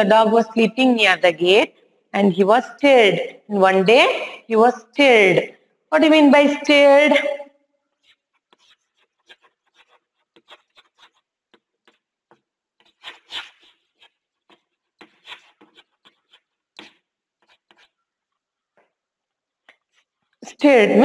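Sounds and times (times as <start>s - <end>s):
chalk scraping on blackboard: 7.9s - 18.0s, 19.6s - 20.4s
chalk tapping and scratching on blackboard: 7.9s - 20.5s.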